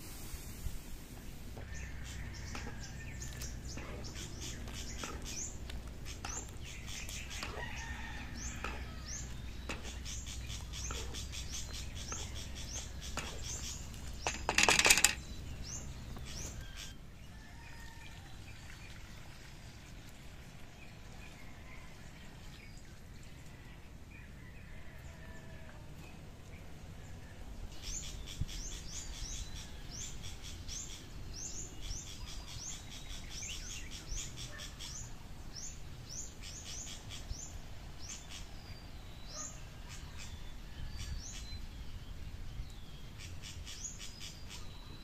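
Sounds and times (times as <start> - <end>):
liquid simmering with crackles: 0.0 - 14.2
metal ladle scraping wok: 2.1 - 15.3.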